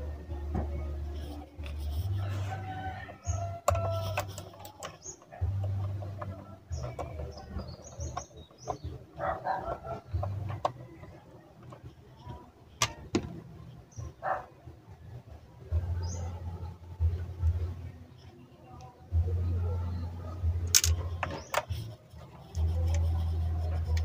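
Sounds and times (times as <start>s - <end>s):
birds chirping: 0.5s - 24.0s
plastic and metal parts clicking: 3.6s - 9.0s, 9.6s - 13.3s, 20.6s - 23.0s.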